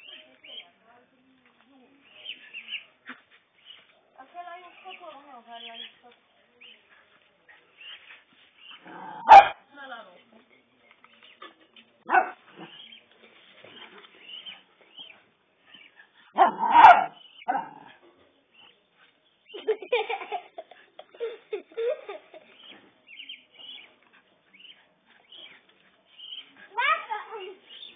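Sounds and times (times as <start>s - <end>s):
small dog barking and yipping: 9.2s - 9.6s, 16.4s - 17.6s.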